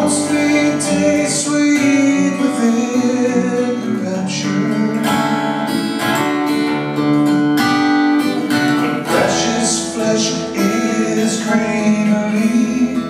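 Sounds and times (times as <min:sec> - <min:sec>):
man singing into a microphone: 0:00.0 - 0:05.7, 0:08.8 - 0:13.0
acoustic guitar: 0:00.0 - 0:13.0.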